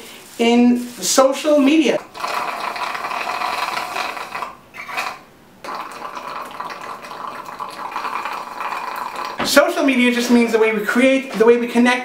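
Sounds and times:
slurping through a straw: 2.0 - 9.4.

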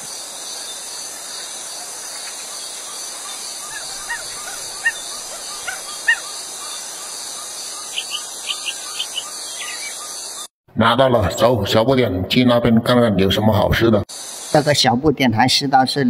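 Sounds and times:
insects hissing: 0.0 - 10.5, 14.0 - 15.7.

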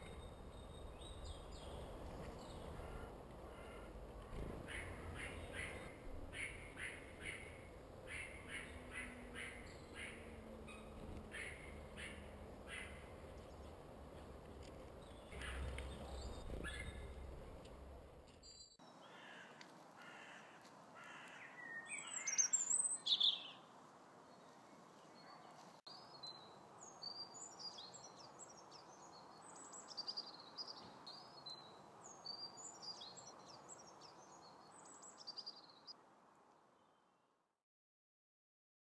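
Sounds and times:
harsh bird calls: 0.0 - 13.7, 15.0 - 17.3
songbirds chirping: 0.0 - 37.2.

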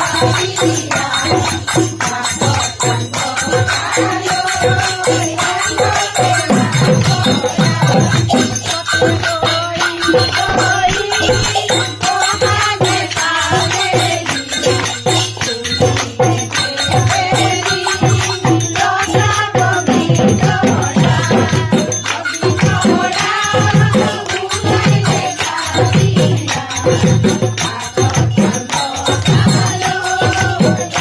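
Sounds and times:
hand clapping: 0.0 - 19.7, 20.4 - 31.0
drum beating: 0.0 - 31.0
women singing together: 0.0 - 31.0.

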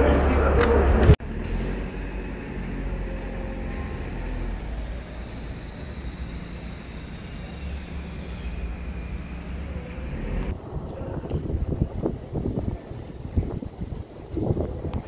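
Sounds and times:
low rumble of distant traffic: 0.0 - 15.0.

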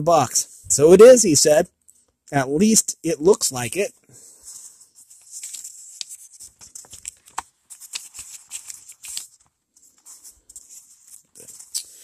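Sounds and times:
book pages turning: 4.4 - 12.0
crinkly paper rustles: 4.4 - 12.0.

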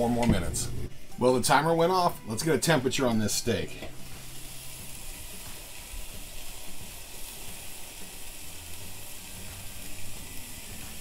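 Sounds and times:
steak sizzling on a grill: 2.6 - 11.0.

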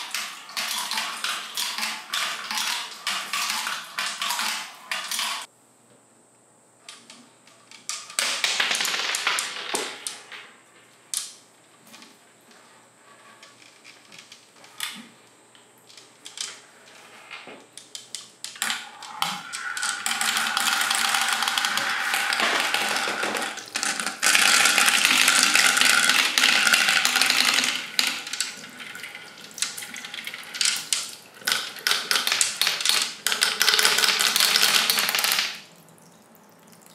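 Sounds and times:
plastic balls clacking on track: 0.0 - 5.5, 6.9 - 10.6, 17.8 - 35.8.

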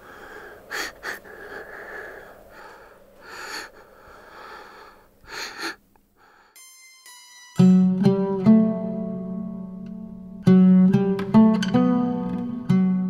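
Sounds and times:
girl breathing: 0.0 - 6.6
high ringing tone: 6.6 - 8.0.

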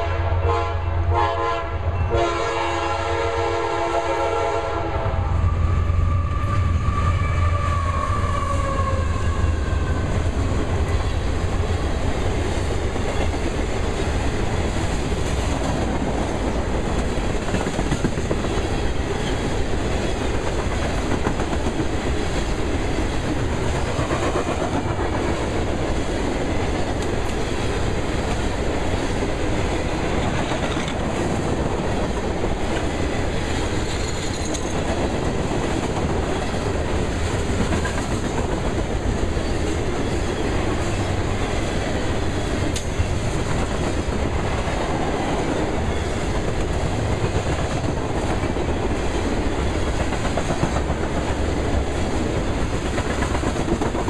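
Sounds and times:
freight train rolling past: 0.0 - 54.0
steel wheels clattering on rails: 10.6 - 41.7, 45.7 - 54.0.

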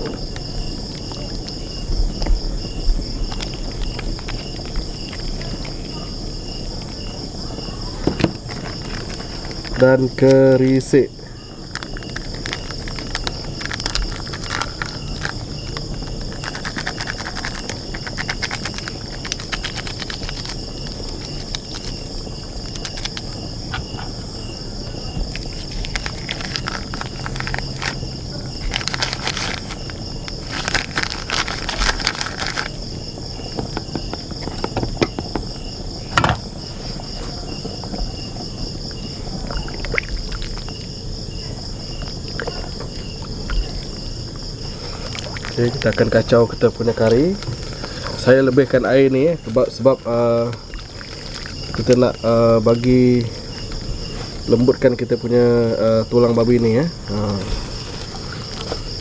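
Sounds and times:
insects chirping drone: 0.0 - 59.0
plastic sachet rustling: 3.0 - 5.8, 8.2 - 10.9, 11.6 - 23.4, 25.2 - 32.9, 43.7 - 55.2.

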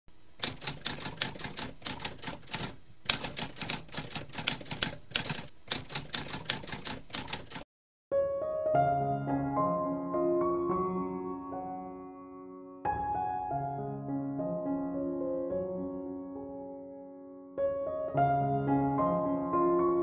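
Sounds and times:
typewriter keys clacking: 0.4 - 7.6
soft piano music: 8.1 - 20.0.

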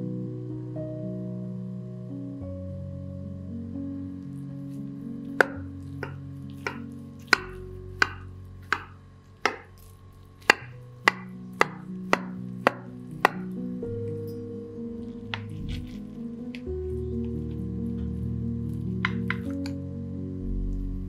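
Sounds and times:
soft background music: 0.0 - 21.0
knife cutting crisp crust: 5.4 - 13.6, 15.1 - 16.7.

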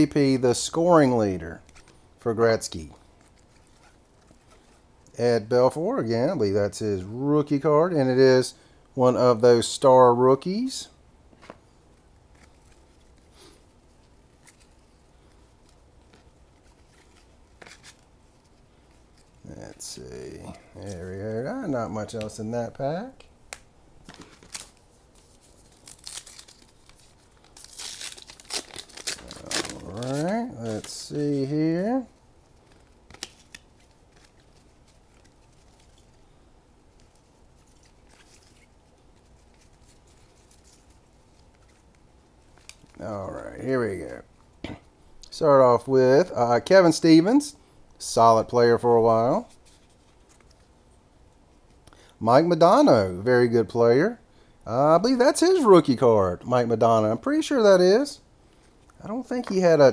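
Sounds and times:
cards being flipped by hand: 11.3 - 13.3, 13.9 - 19.8, 23.2 - 31.1, 32.5 - 36.2, 36.9 - 43.0, 49.5 - 50.7.

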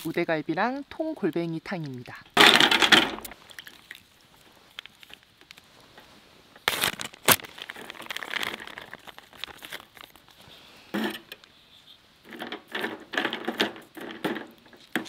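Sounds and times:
plastic bags crinkling: 6.6 - 10.4.

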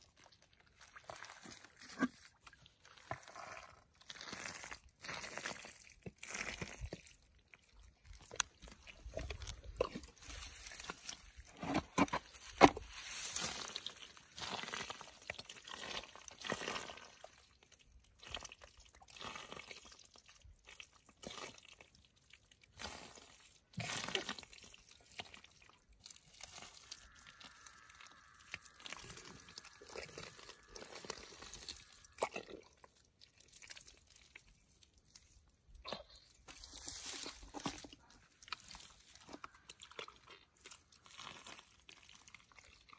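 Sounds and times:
hands digging wet mud: 0.0 - 42.9
mud squelching: 0.0 - 42.9
dripping: 24.1 - 35.4.

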